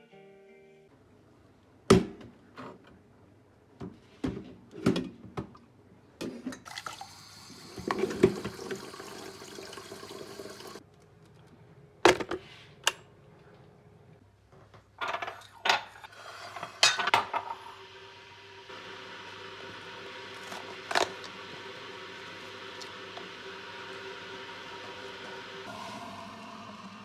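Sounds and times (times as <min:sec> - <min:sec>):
tap water running: 0:06.6 - 0:10.8, 0:16.1 - 0:27.0.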